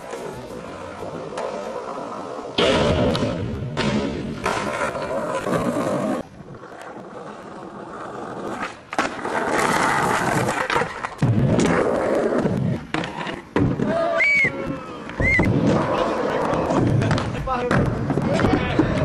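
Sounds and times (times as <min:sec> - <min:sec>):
skateboard wheels rolling: 0:00.0 - 0:19.0
skateboard clacks: 0:08.5 - 0:19.0.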